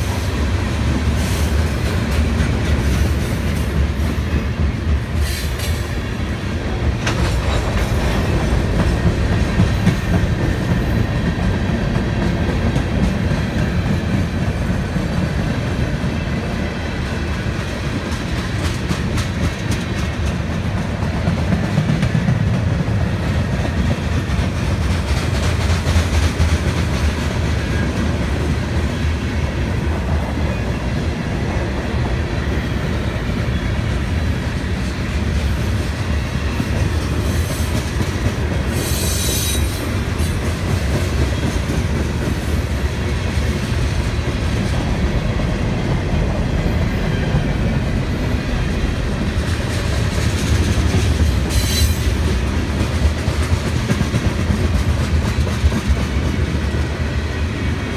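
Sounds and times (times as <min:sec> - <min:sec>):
train wheels rumbling on rails: 0:00.0 - 0:57.9
wheels clacking over rail joints: 0:06.7 - 0:15.3.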